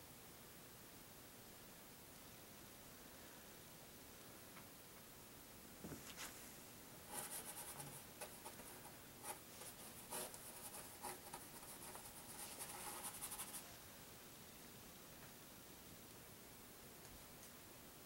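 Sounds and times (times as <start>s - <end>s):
paintbrush scratching: 7.0s - 13.7s.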